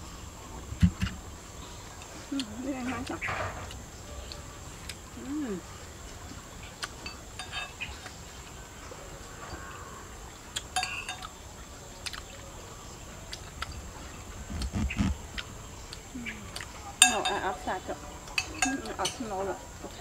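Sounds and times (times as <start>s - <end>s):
low muffled thud: 0.8s - 1.2s
spoons clinking on plates: 7.0s - 7.9s, 10.6s - 11.4s, 17.0s - 19.4s.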